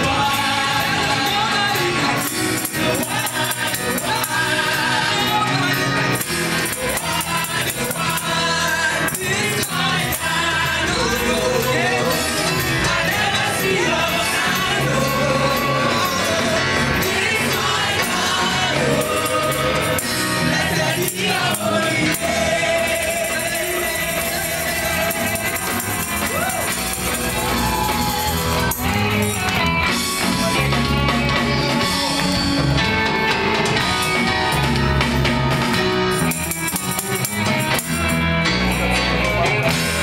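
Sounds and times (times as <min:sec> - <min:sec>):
singing: 0:00.0 - 0:28.9
gospel band playing: 0:00.0 - 0:40.0.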